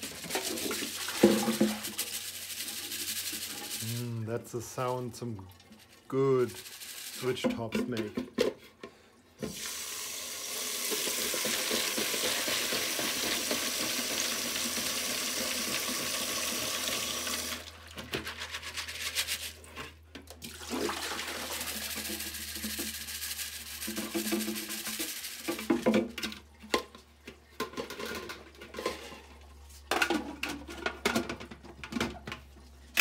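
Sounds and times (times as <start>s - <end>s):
tap water running into sink: 0.0s - 2.4s, 9.4s - 18.2s, 20.3s - 26.1s.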